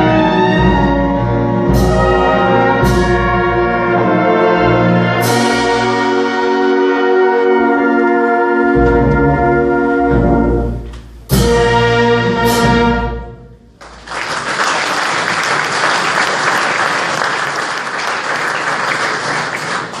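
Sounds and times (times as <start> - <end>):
wind band playing: 0.0 - 13.8
audience applause: 13.8 - 20.0.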